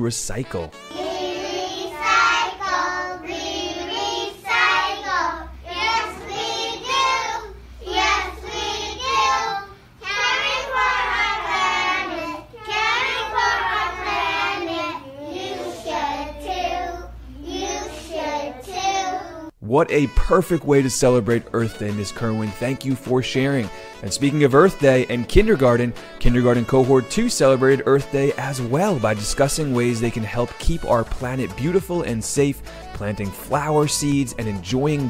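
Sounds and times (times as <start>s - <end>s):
children singing together: 0.8s - 19.5s.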